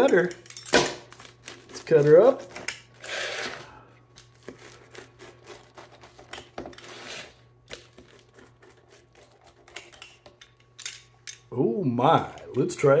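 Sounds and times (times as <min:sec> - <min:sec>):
pizza cutter slicing pizza: 0:04.3 - 0:10.0.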